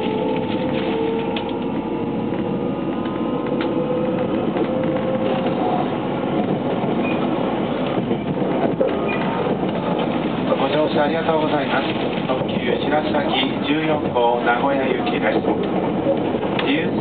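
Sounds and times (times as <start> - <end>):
wheels rumbling on rail: 0.0 - 17.0.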